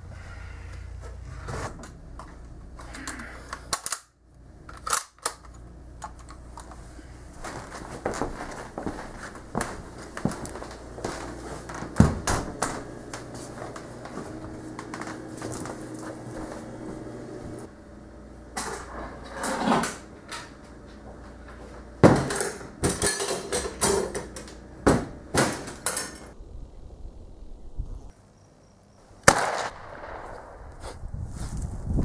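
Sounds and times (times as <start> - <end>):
objects clattering when handled: 18.6 - 26.4.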